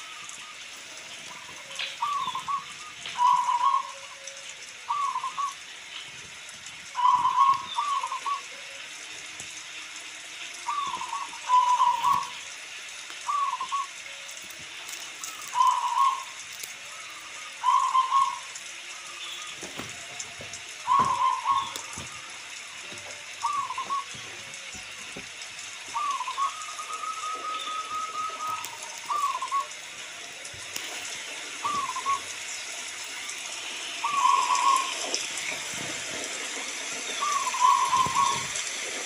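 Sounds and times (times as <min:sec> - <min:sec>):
rain hissing: 0:00.0 - 0:39.0
dove cooing: 0:01.3 - 0:05.6, 0:06.9 - 0:08.9, 0:10.6 - 0:12.4, 0:13.2 - 0:14.3, 0:15.2 - 0:33.3, 0:34.0 - 0:35.9, 0:37.1 - 0:38.7.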